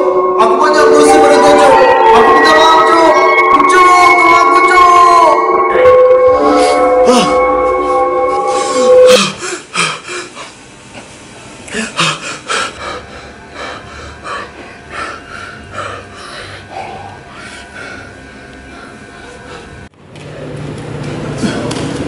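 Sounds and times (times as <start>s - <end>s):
held soundtrack tone: 0.0s - 9.6s
man breathing hard: 8.4s - 10.6s, 11.7s - 19.9s.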